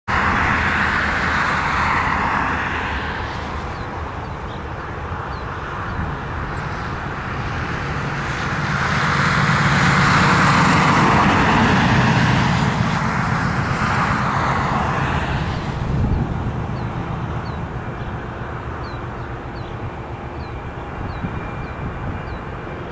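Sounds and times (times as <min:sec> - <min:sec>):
distant jet engines humming: 0:00.1 - 0:22.9
pickup truck driving past: 0:06.3 - 0:19.6.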